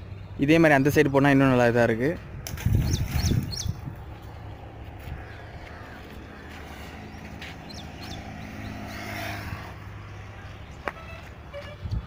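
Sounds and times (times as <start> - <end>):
wind on microphone: 2.2 - 5.6, 11.6 - 12.0
passing vehicle engine hum: 2.2 - 12.0
bird chirps: 2.7 - 4.5, 6.8 - 9.4.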